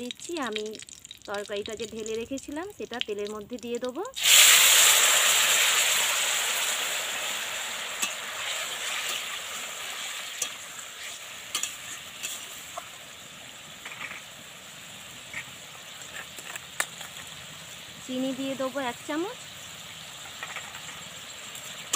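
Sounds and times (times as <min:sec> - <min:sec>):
vegetables sizzling in hot oil: 0:00.0 - 0:21.9
metal spatula clinking on wok: 0:11.5 - 0:12.4.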